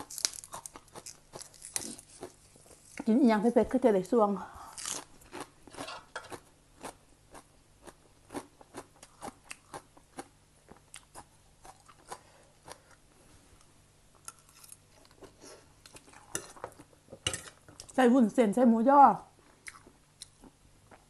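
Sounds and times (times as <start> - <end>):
person chewing crunchy vegetable: 0.0 - 3.1, 4.7 - 13.1, 14.2 - 16.9, 19.4 - 21.0.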